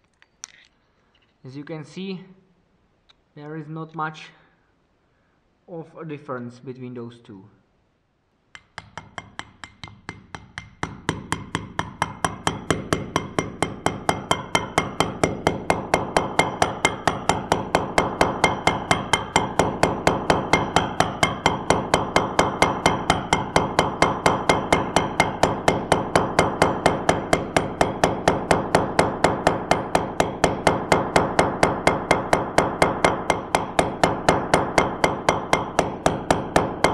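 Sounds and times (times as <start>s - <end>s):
hammer blows on metal driver: 8.6s - 36.9s.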